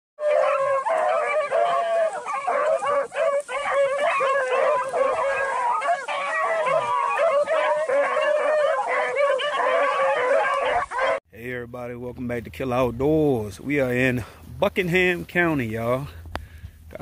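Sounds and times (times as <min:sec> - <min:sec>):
hounds baying: 0:00.2 - 0:11.2.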